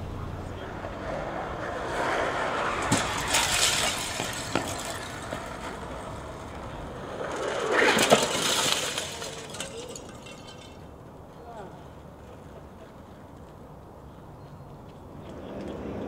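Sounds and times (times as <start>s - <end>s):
glass shattering: 2.8s - 5.6s, 7.7s - 10.9s.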